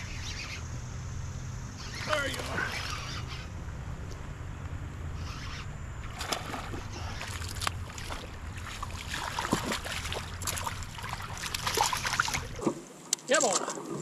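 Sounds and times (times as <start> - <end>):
fish splashing at surface: 6.1 - 12.6.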